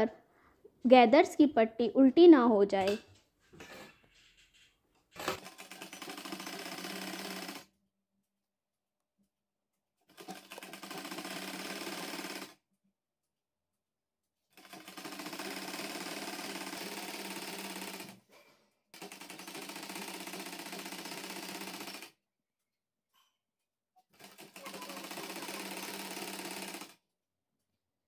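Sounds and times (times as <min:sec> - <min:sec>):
sewing machine stitching: 0:03.6 - 0:07.7, 0:10.1 - 0:12.6, 0:14.6 - 0:22.2, 0:24.1 - 0:27.0.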